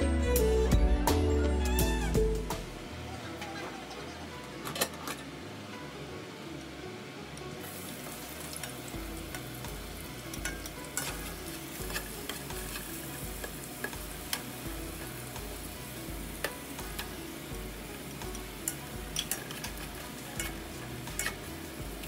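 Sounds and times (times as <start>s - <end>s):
onion and garlic sizzling in oil: 6.3s - 22.0s
spatula scraping and tapping pan: 10.4s - 14.5s, 18.2s - 21.5s.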